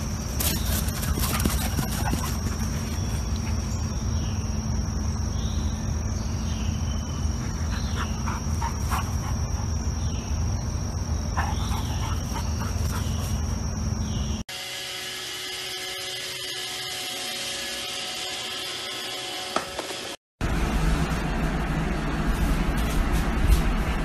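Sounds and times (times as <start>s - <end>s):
crickets chorus: 0.0s - 14.4s.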